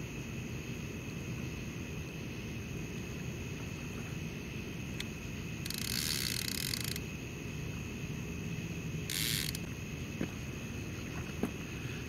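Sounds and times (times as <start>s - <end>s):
fishing reel clicker buzzing: 5.0s - 7.0s, 9.1s - 9.7s.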